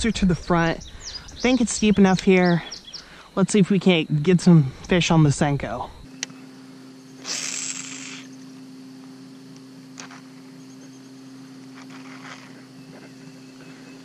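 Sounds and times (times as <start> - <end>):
electric trolling motor humming: 3.9 - 14.0
fishing line hiss: 7.2 - 8.4, 10.0 - 10.4.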